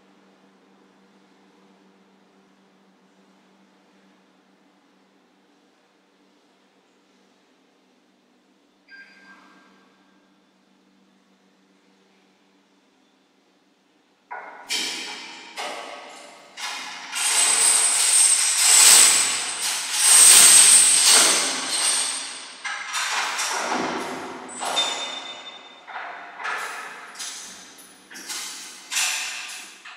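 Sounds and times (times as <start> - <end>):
metal gate rattling and clanking: 14.4 - 29.9
grating scrape and squeal: 17.1 - 22.3.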